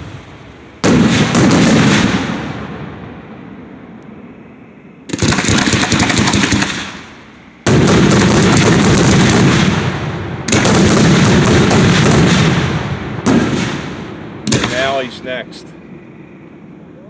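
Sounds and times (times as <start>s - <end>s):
fireworks cracks and booms: 0.0s - 3.2s, 5.1s - 15.2s.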